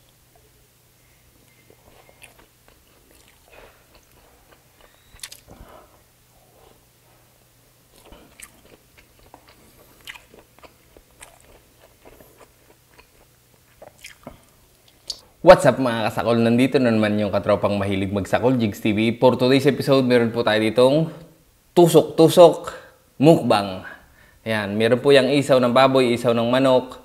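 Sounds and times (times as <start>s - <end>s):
chewing and crunching: 1.4s - 5.7s, 7.9s - 15.2s.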